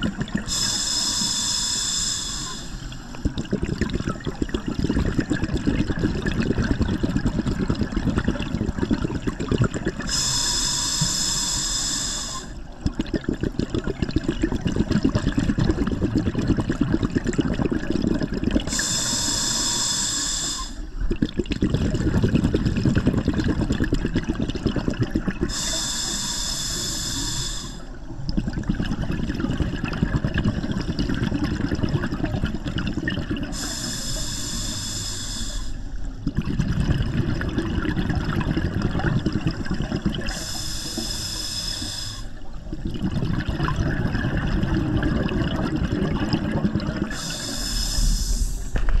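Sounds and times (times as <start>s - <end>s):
exhaled bubbles burbling: 0.0s - 1.3s, 2.5s - 10.8s, 12.2s - 19.7s, 20.6s - 26.3s, 27.4s - 34.8s, 35.7s - 49.0s
scuba regulator inhalations hissing: 0.3s - 3.7s, 9.8s - 14.9s, 18.6s - 24.2s, 25.2s - 28.2s, 33.3s - 36.3s, 38.5s - 42.9s, 46.1s - 49.0s.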